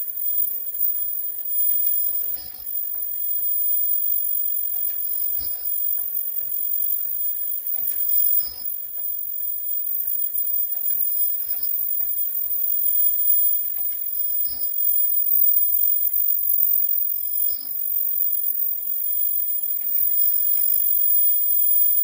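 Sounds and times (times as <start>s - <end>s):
machine high-pitched whine: 0.0s - 22.0s
short high beep: 0.0s - 22.0s.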